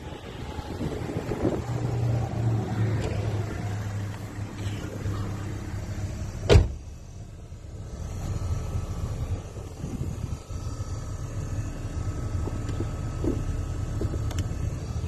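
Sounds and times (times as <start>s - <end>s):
steady low hum: 0.0s - 15.0s
truck door shutting: 6.4s - 6.8s.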